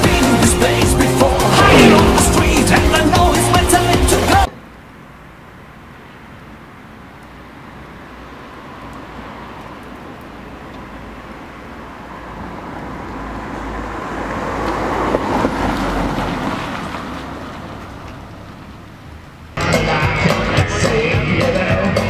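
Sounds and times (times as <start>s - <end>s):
loud rock music: 0.0s - 4.5s, 19.6s - 22.0s
car passing by: 1.0s - 4.5s, 12.4s - 18.8s.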